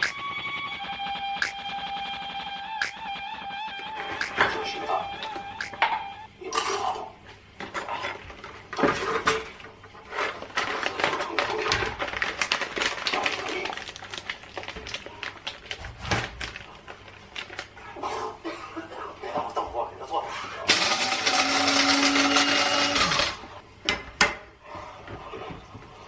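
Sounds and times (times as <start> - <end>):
foil bag crinkling: 10.1 - 17.9
coffee beans rattling into metal bowl: 20.7 - 23.4.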